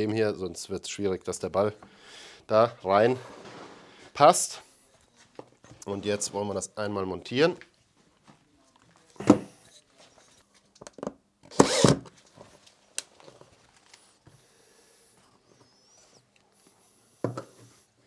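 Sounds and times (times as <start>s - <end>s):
cordless drill driving a screw: 11.5s - 12.1s.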